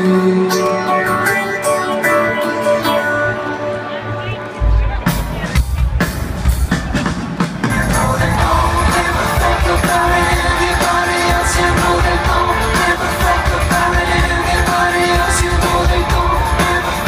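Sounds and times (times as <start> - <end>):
rock band playing live: 0.0 - 17.0
people singing: 7.6 - 17.0.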